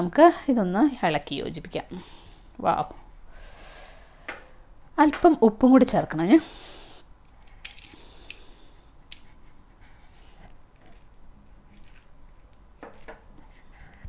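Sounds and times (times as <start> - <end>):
wet salad squishing: 10.8 - 13.4.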